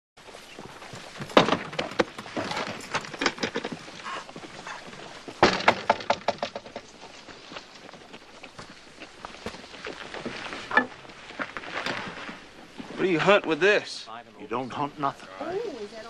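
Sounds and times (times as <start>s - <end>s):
clatter of knocks and clicks: 1.2s - 4.0s, 5.4s - 6.9s.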